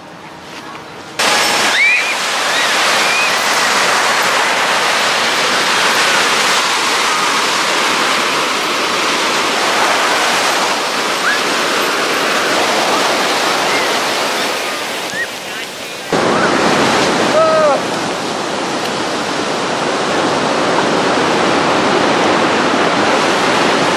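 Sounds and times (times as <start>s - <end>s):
ocean surf breaking: 1.0s - 23.9s
gull calls: 11.2s - 11.6s.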